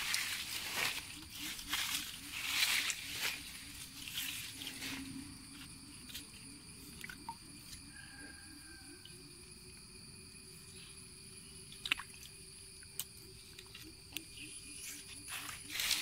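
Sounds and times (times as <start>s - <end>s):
small splashes: 11.7s - 12.4s.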